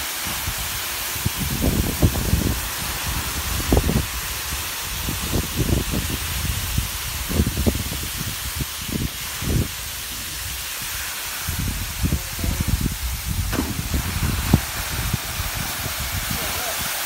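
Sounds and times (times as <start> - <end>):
waterfall rushing: 0.0 - 17.0
low rumbles on microphone: 11.5 - 16.4.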